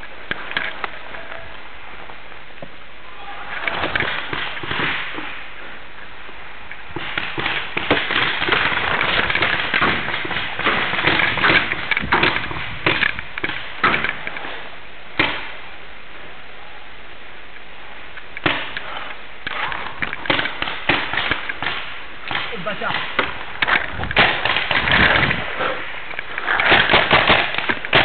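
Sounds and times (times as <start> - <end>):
paintball markers firing pops: 18.4 - 25.4, 26.2 - 28.0.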